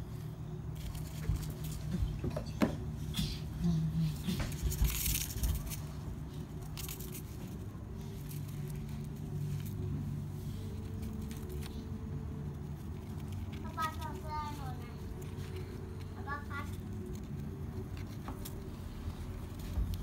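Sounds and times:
steady low hum: 0.0 - 20.0
hamsters digging in sand: 2.8 - 20.0.

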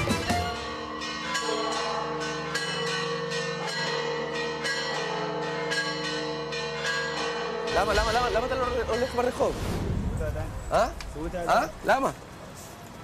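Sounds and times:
church bells ringing: 0.0 - 9.4.

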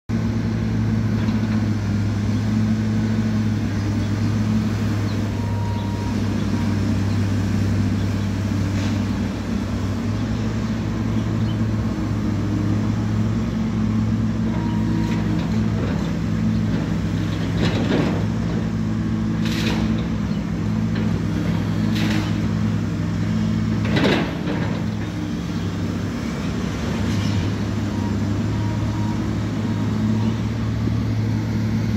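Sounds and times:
excavator diesel engine running: 0.1 - 31.9
demolition knocks and crashes: 23.8 - 25.1.

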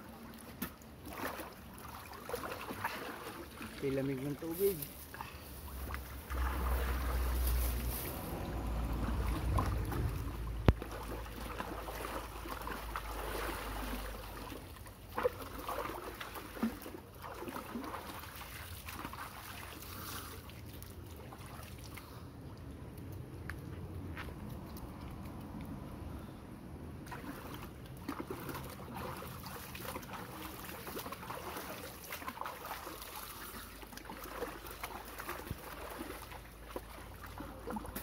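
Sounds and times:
water splashing in a pool: 0.0 - 38.0
low microphone rumble: 6.2 - 10.7.

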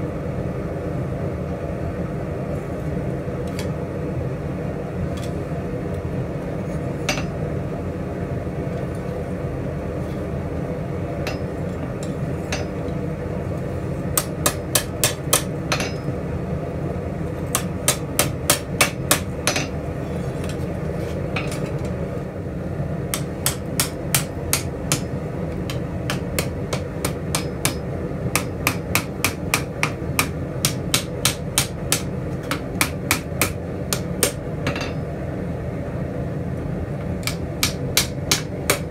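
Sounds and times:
hammer striking steel on anvil: 7.1 - 7.4, 11.2 - 12.8, 14.2 - 16.2, 17.5 - 19.8, 23.1 - 25.1, 25.7 - 35.0, 37.2 - 38.9.

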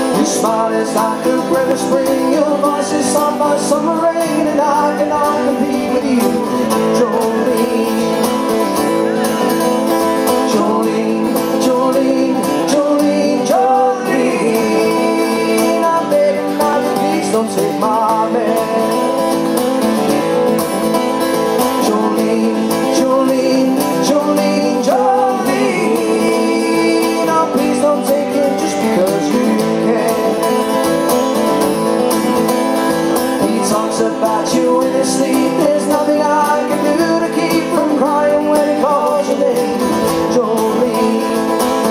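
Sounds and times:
man singing: 0.0 - 19.6, 21.3 - 31.2, 33.0 - 41.9
acoustic guitars strummed: 0.0 - 41.9.

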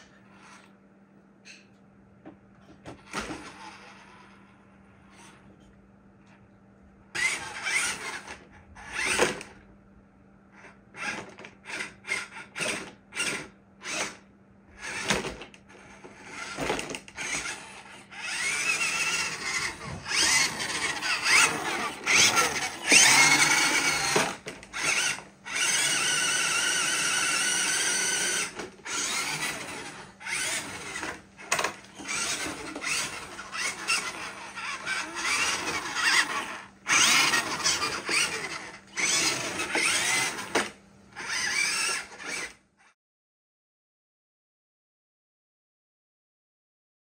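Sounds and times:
toy car electric motor whining: 0.3 - 0.7, 3.0 - 5.4, 7.2 - 9.6, 10.6 - 43.0.

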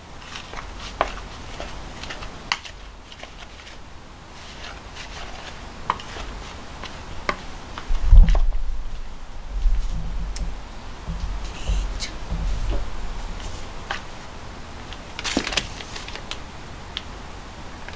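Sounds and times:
low thump and rumble: 7.9 - 13.9.

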